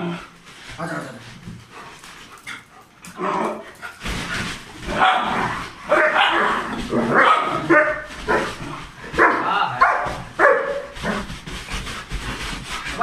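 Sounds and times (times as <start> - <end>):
dogs barking: 4.9 - 11.2.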